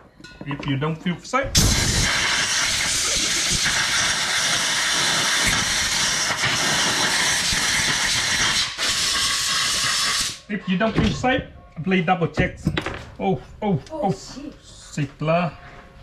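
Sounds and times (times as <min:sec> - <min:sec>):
spray cleaner hissing: 0:01.6 - 0:10.4.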